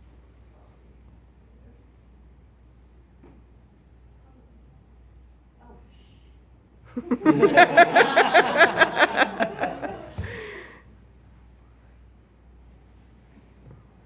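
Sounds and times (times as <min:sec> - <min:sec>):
person laughing loudly: 0:07.0 - 0:10.4.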